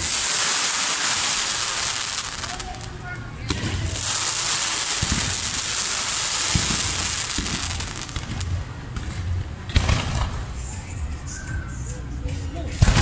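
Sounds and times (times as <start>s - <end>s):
fireworks crackling: 0.0s - 10.9s, 12.8s - 13.0s
dull low firework booms: 3.5s - 10.3s.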